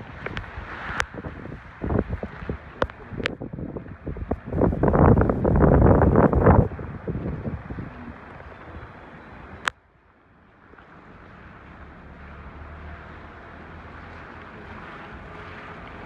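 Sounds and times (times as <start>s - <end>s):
wind rushing: 0.0s - 7.9s.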